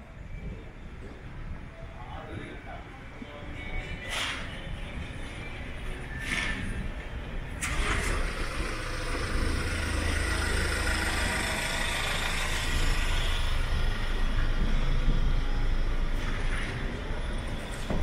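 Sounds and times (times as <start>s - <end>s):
vehicle engine rumbling: 4.4s - 18.0s.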